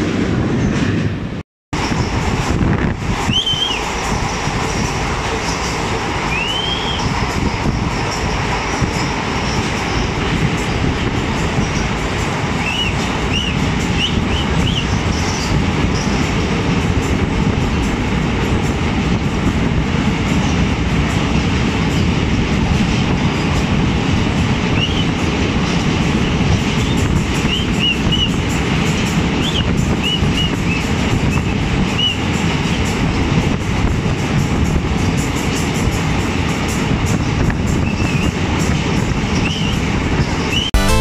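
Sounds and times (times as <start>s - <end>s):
train wheels rumbling on track: 0.0s - 40.7s
short high wheel squeals: 3.3s - 4.2s, 6.3s - 7.2s.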